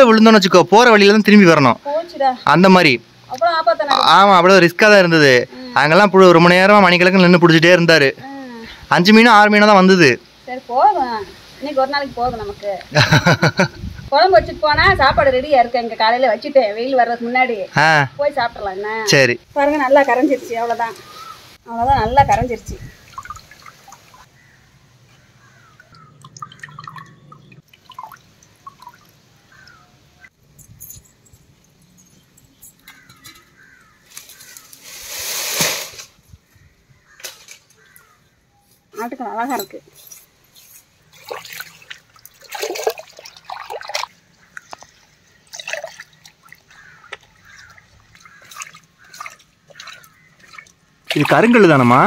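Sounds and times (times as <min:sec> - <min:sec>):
water dripping into a pot: 0:23.0 - 0:24.3, 0:25.6 - 0:29.8, 0:41.1 - 0:51.6.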